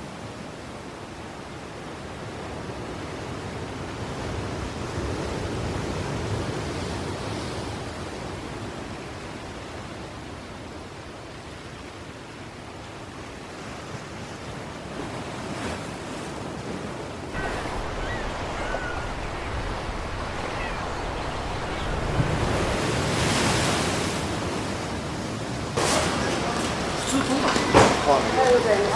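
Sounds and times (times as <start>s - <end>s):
wind: 0.0s - 28.9s
waves rushing: 13.0s - 28.9s
faint high chirps: 17.4s - 23.0s.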